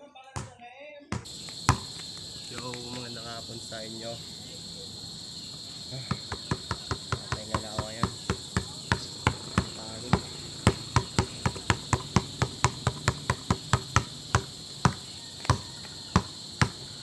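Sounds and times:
basketball bouncing on asphalt: 0:00.4 - 0:17.0.

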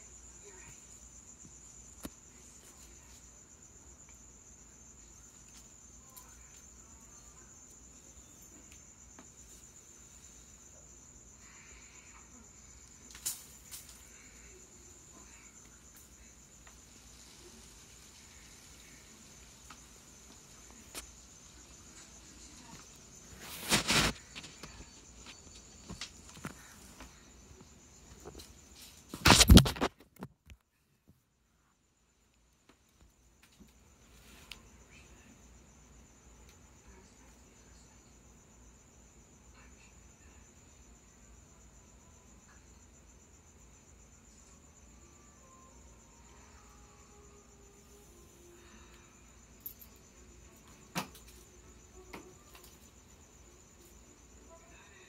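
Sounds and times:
crickets trilling: 0:00.0 - 0:55.0
loud short rustling: 0:23.3 - 0:24.6.

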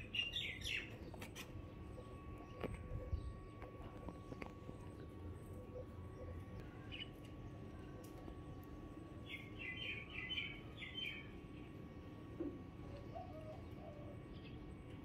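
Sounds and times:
small bird chirping: 0:00.0 - 0:04.5.

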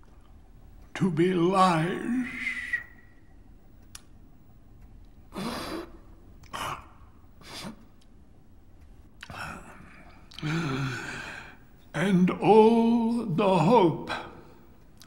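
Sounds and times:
old man breathing heavily: 0:05.3 - 0:06.0, 0:07.4 - 0:07.9, 0:09.3 - 0:11.7.

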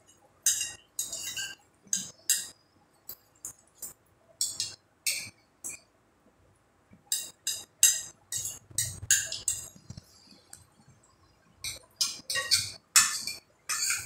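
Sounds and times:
cutlery clinking against plates: 0:00.0 - 0:05.8, 0:07.1 - 0:10.0, 0:11.6 - 0:14.0.

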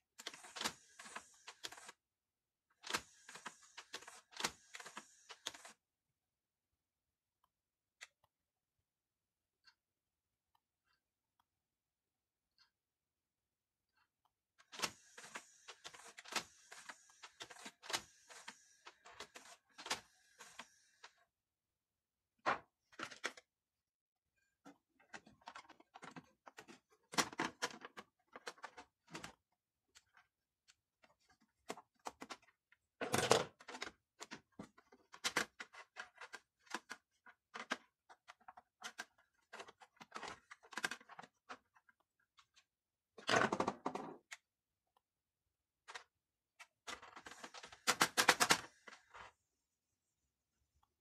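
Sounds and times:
plastic clicks and scrapes: 0:00.2 - 0:02.0, 0:02.7 - 0:05.8, 0:14.0 - 0:21.2, 0:24.5 - 0:44.5, 0:45.8 - 0:49.4.

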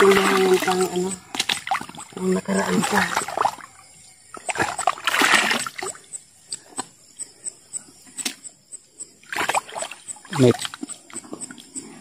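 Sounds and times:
river water splashing: 0:00.0 - 0:06.0, 0:09.2 - 0:10.8
water drips: 0:00.0 - 0:06.9, 0:09.3 - 0:11.9
faint high ticking: 0:06.0 - 0:09.2.

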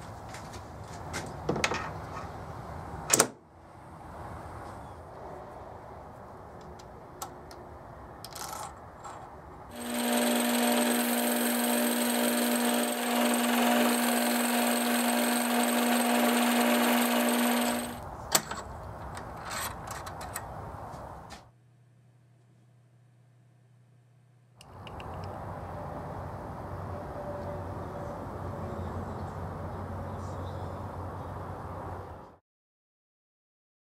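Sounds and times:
metal lathe running: 0:09.7 - 0:18.0
tool bit cutting hiss: 0:09.7 - 0:18.0.

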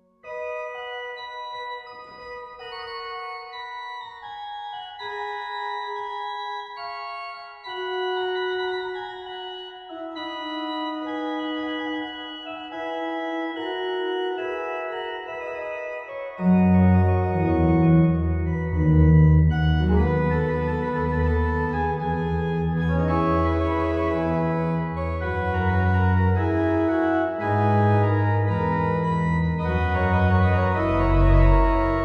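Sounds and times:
pipe organ playing: 0:00.2 - 0:32.0
deep organ bass notes: 0:16.4 - 0:32.0.

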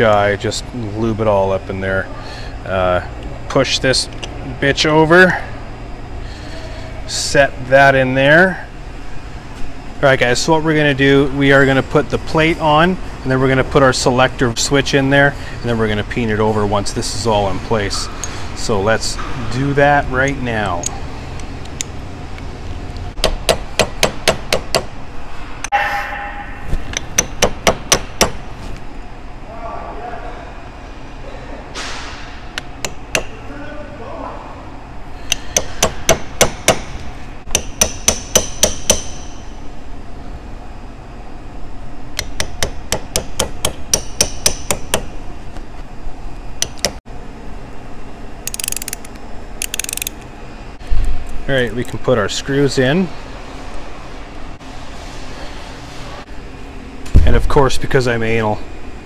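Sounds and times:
hammer tapping on metal: 0:23.2 - 0:24.9, 0:26.9 - 0:28.4, 0:37.5 - 0:39.3, 0:42.2 - 0:45.1.

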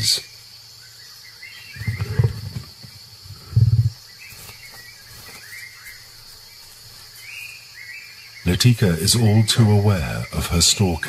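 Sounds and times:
birds chirping: 0:00.0 - 0:11.0
insect drone: 0:00.0 - 0:11.0
tiger growling: 0:01.6 - 0:04.1.

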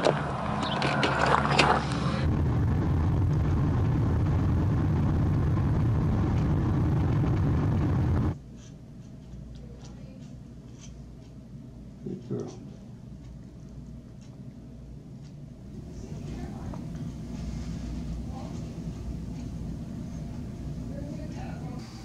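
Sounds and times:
car cabin rumble: 0:02.2 - 0:08.4.

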